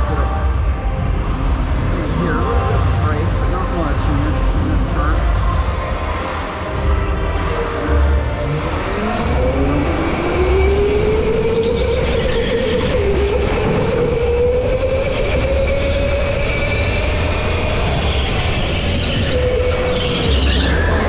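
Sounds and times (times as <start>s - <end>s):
low rumble: 0.0s - 19.9s
go-kart motor whining: 5.1s - 21.0s
high squeals: 5.2s - 21.0s.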